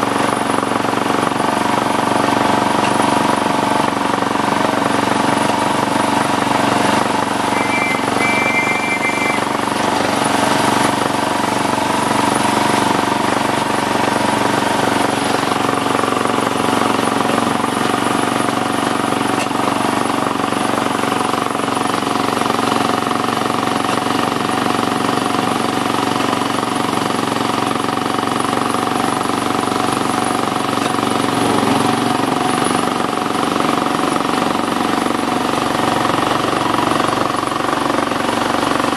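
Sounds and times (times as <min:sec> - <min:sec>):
high two-note sound: 0:07.4 - 0:09.7.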